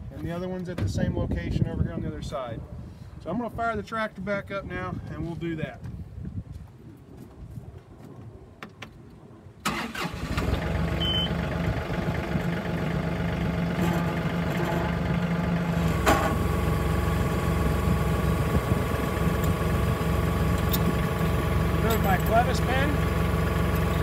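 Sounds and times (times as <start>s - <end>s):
tractor diesel engine starting and idling: 9.6s - 24.0s.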